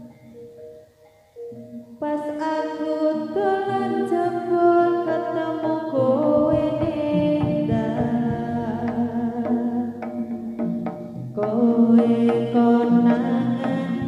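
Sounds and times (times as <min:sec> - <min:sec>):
gamelan music: 0:00.0 - 0:14.0
person singing: 0:02.0 - 0:10.2, 0:11.4 - 0:14.0
low drum beats: 0:06.4 - 0:14.0.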